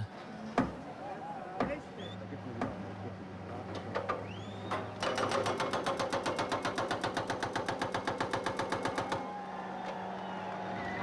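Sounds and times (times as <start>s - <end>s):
hydraulic breaker hammering concrete: 5.0s - 9.2s.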